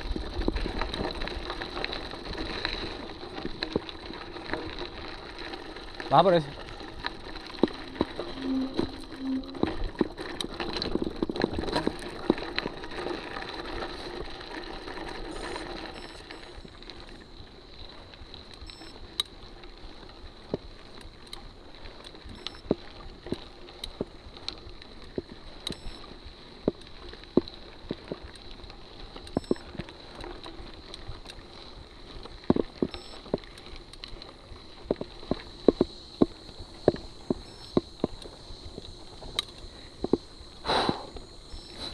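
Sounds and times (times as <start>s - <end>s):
bike rattling over stones: 0.0s - 41.9s
bike tyres crunching on gravel: 0.0s - 41.9s
steady high whine: 4.4s - 17.4s.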